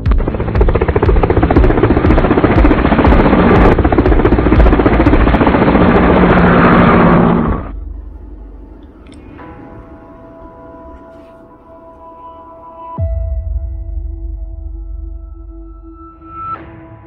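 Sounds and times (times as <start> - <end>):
helicopter rotor chop: 0.0 - 7.8
helicopter turbine rush: 0.0 - 9.5.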